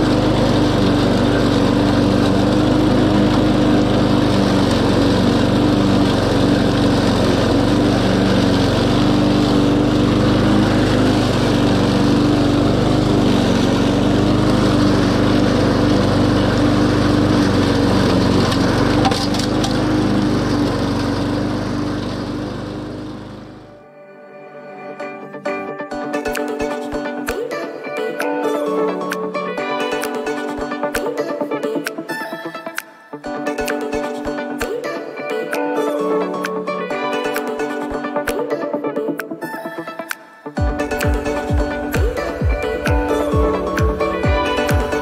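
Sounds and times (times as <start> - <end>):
lawn mower engine cutting grass: 0.0 - 23.8, 40.6 - 45.0.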